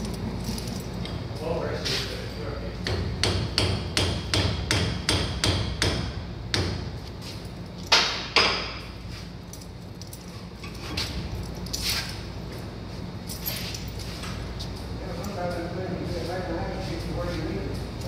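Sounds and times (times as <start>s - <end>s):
hammer striking metal spike: 2.9s - 6.8s.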